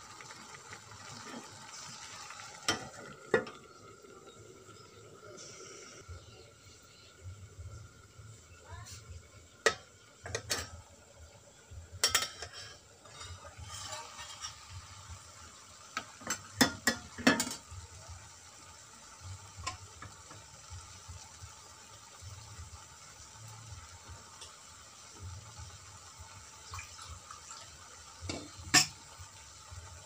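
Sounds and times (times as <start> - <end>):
greens sizzling: 0.0 - 30.0
spatula scraping metal pan: 12.1 - 14.8.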